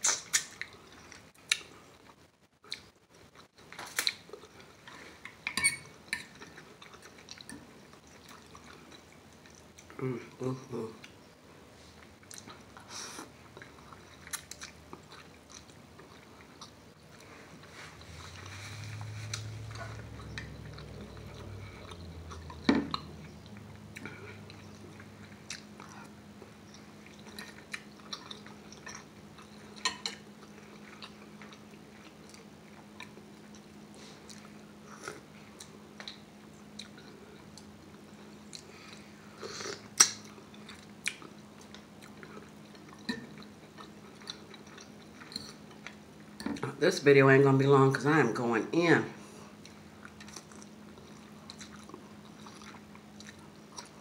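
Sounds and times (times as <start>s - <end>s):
faint steady hum: 0.0s - 54.0s
chewing and biting food: 12.1s - 46.3s, 49.6s - 54.0s.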